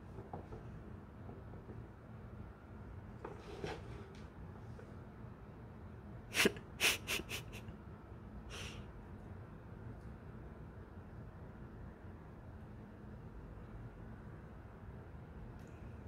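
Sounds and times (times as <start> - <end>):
cat sneezing: 6.3 - 7.7.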